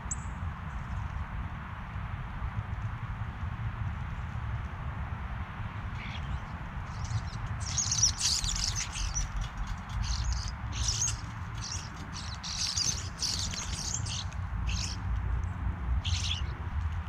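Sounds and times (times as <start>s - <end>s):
starlings chattering: 6.9s - 15.0s, 16.0s - 16.5s.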